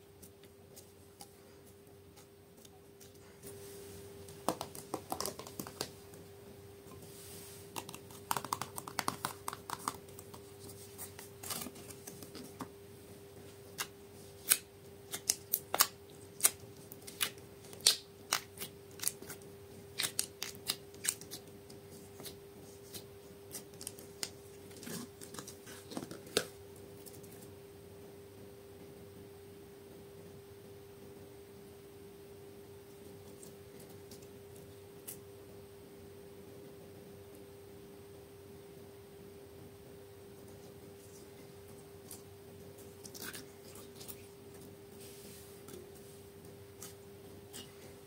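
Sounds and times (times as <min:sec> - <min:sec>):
steady hum: 0:00.0 - 0:48.0
hands handling slime and packaging: 0:04.3 - 0:06.0, 0:07.7 - 0:12.7.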